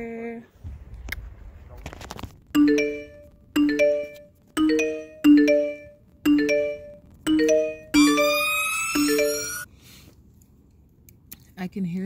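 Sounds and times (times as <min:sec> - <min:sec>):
rising bell-like chime figure: 0:02.6 - 0:09.7
held tone sliding upward: 0:08.0 - 0:09.7.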